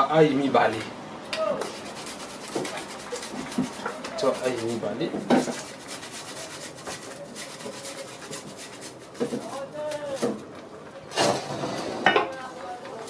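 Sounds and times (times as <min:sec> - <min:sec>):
food rasping on metal grater: 0:01.6 - 0:10.4.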